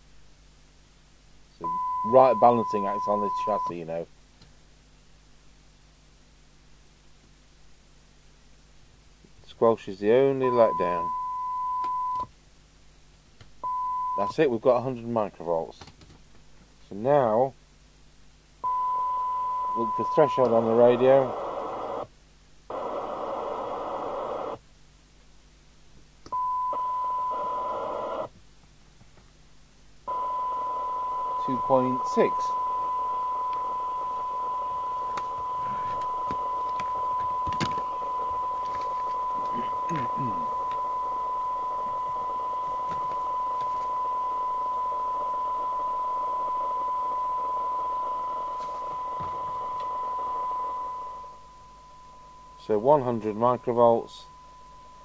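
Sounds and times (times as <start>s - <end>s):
radio hiss: 1.5s - 4.1s, 9.5s - 11.3s, 19.6s - 24.6s, 26.7s - 28.3s, 30.1s - 55.0s
steady test tone: 1.6s - 4.0s, 30.1s - 55.0s.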